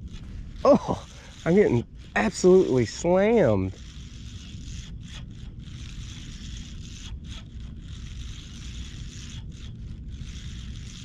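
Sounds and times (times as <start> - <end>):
fishing reel whirring: 0.0 - 11.0
wind rumble on microphone: 0.0 - 11.0.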